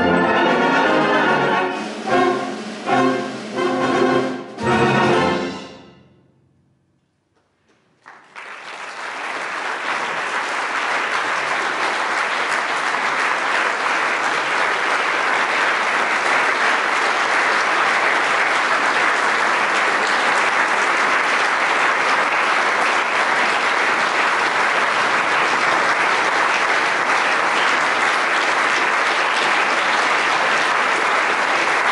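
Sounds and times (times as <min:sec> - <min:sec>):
audience applauding: 0:07.8 - 0:31.9.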